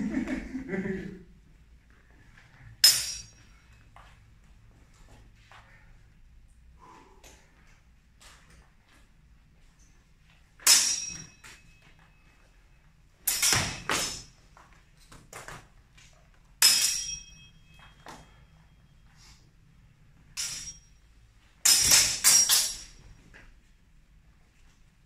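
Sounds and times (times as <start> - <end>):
steel swords clashing: 2.8 - 3.6, 10.6 - 11.8, 13.2 - 14.4, 16.6 - 18.3, 20.3 - 21.0, 21.6 - 23.0.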